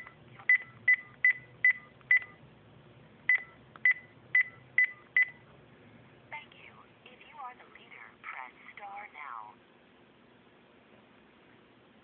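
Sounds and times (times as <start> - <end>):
touch-tone keypad beeps: 0.0 - 2.4, 3.3 - 5.4.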